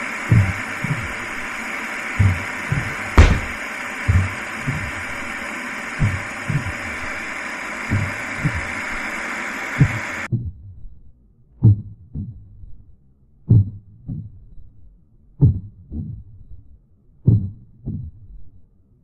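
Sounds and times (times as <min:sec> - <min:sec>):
slow heartbeat thumps: 0:00.3 - 0:01.2, 0:02.2 - 0:05.2, 0:06.0 - 0:07.2, 0:07.8 - 0:09.1, 0:09.8 - 0:14.8, 0:15.4 - 0:18.6.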